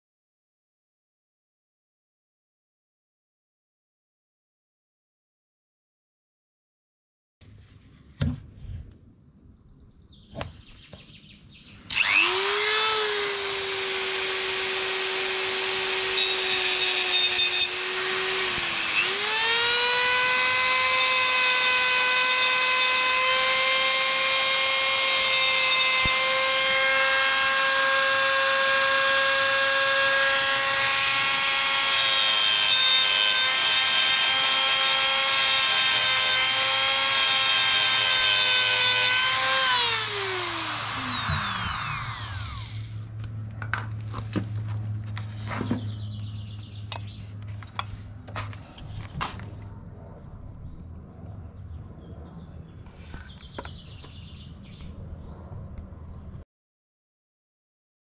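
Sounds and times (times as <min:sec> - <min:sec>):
cut-off disc grinding steel: 0:11.9 - 0:43.0
rotary tool whine: 0:11.9 - 0:46.0.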